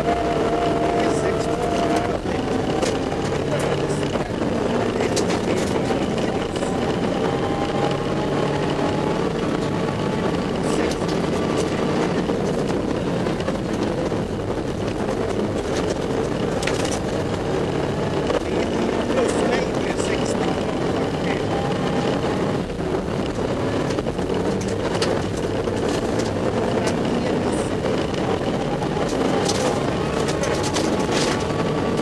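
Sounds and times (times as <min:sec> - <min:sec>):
rally car engine under load: 0:00.0 - 0:32.0
sharp clicks and knocks: 0:11.0 - 0:17.5, 0:27.9 - 0:32.0.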